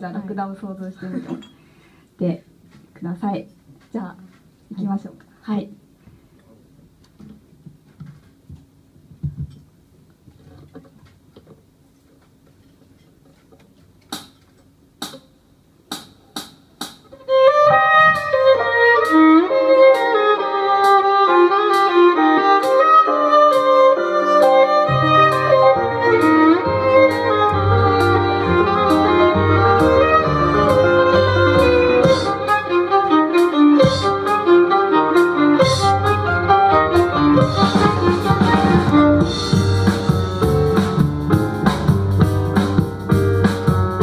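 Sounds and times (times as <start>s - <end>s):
violin melody: 17.1s - 44.0s
double bass notes: 24.9s - 44.0s
ticking beat: 27.0s - 44.0s.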